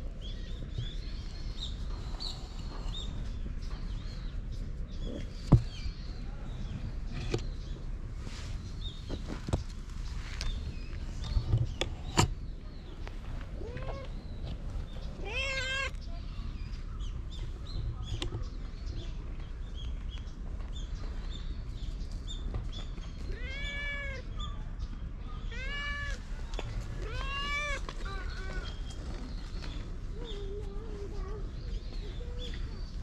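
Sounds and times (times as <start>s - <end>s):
cat meowing: 15.2s - 16.0s, 25.4s - 26.2s, 27.0s - 28.6s.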